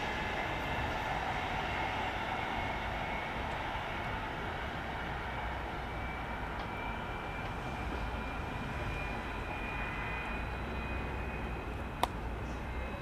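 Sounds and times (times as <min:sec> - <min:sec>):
faint high whine: 0:05.3 - 0:13.0.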